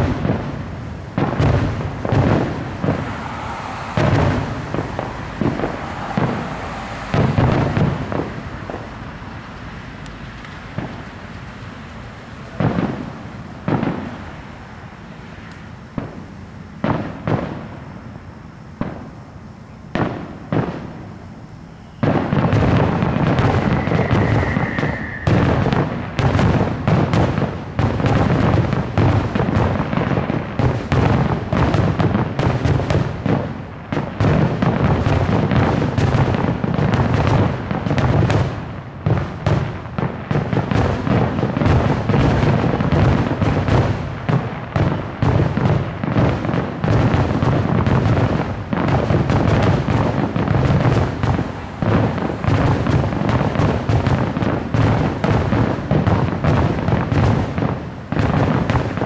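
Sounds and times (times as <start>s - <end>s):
high firework whistle: 0.0s - 11.3s, 15.1s - 27.1s
fireworks bursting: 0.0s - 59.0s.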